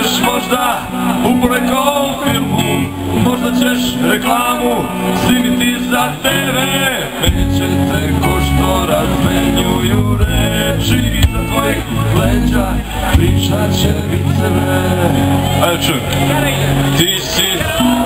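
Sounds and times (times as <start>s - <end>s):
live band playing loudly: 0.0s - 18.0s
man singing: 0.0s - 18.0s.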